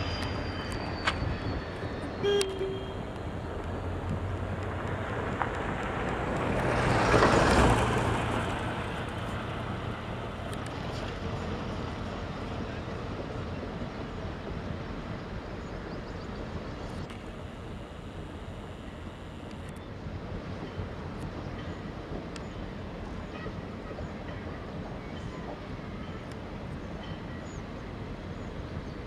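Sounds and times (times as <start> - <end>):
diesel locomotive engine humming: 0.0 - 29.0.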